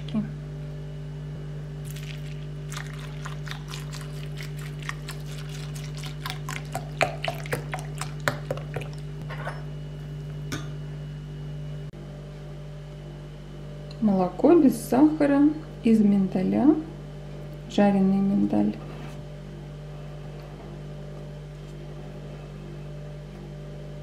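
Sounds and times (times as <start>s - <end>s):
steady low hum: 0.0s - 24.0s
cereal crackling: 1.8s - 8.3s
milk pouring onto cereal: 1.9s - 9.0s.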